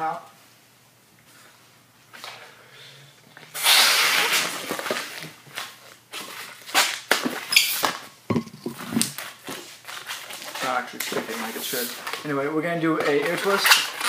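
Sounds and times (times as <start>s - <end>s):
balloon blown up by mouth: 3.5s - 4.7s.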